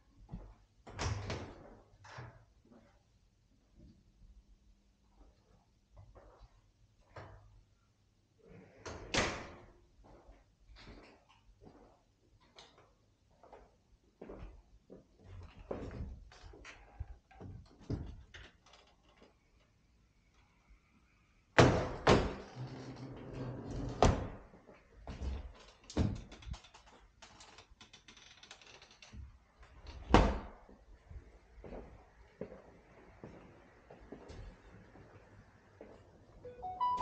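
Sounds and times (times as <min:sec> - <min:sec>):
wooden doors opening and shutting: 0:00.8 - 0:02.5, 0:15.4 - 0:19.7, 0:21.6 - 0:30.7.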